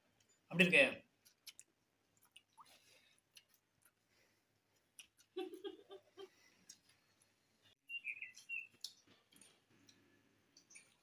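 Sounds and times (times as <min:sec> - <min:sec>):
bird chirp: 0:07.6 - 0:09.0.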